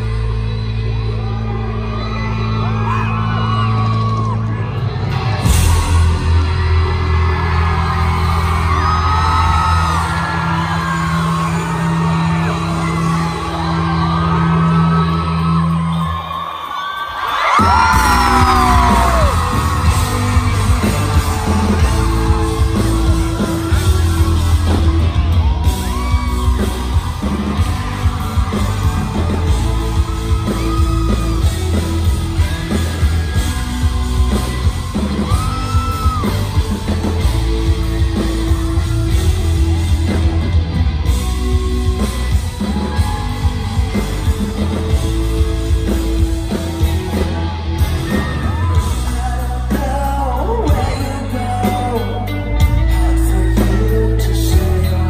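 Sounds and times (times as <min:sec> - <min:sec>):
crowd yelling and whooping: 0:00.0 - 0:55.0
live electronic rock band: 0:00.0 - 0:55.0
singing: 0:48.4 - 0:55.0.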